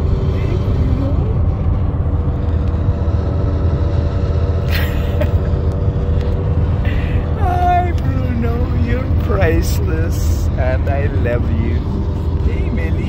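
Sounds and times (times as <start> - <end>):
car cabin engine and road drone: 0.0 - 13.0.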